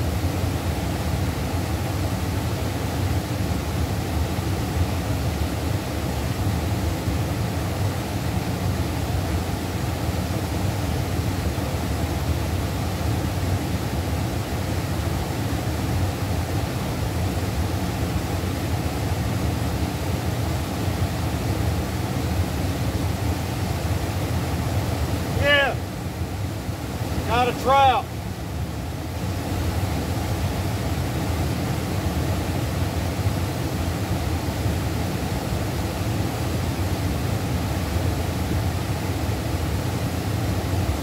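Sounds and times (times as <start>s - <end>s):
river current rushing: 15.4s - 40.9s.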